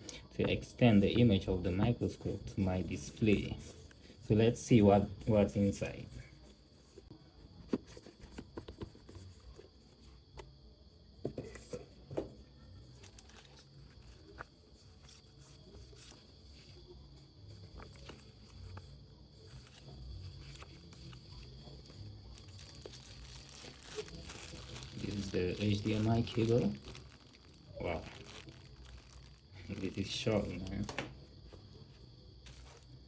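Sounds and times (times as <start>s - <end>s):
paper shuffling: 12.8s - 33.0s.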